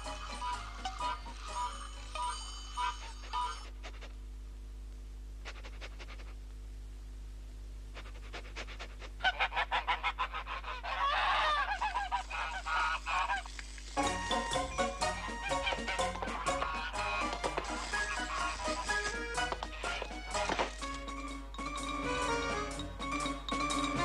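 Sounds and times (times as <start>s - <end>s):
goose honking and cackling: 0.0s - 1.7s, 9.2s - 13.5s, 14.9s - 20.7s
music: 0.0s - 2.9s, 14.0s - 24.0s.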